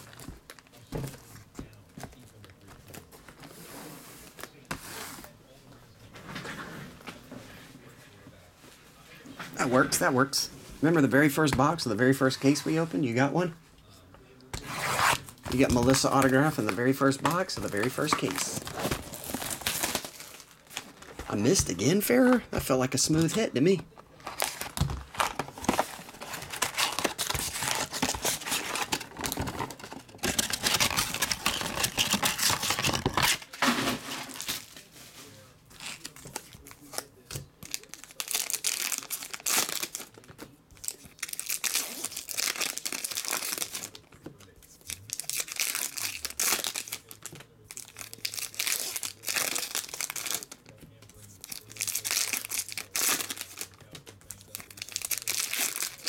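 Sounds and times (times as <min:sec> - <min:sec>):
foil wrappers tearing and crinkling: 0:14.6 - 0:21.4, 0:24.2 - 0:34.9, 0:35.8 - 0:44.0, 0:44.8 - 0:56.0.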